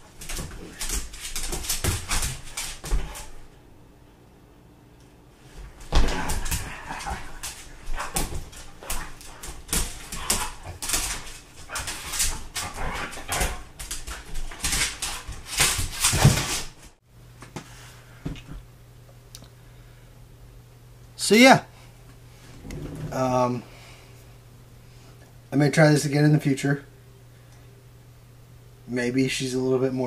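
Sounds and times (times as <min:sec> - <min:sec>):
paws scrabbling on wooden floor: 0:00.0 - 0:03.5, 0:05.5 - 0:16.9.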